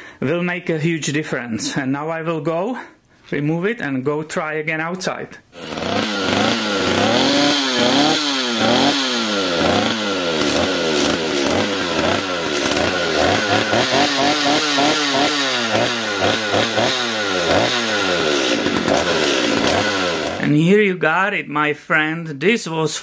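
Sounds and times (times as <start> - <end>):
chainsaw revving: 5.5 - 20.6.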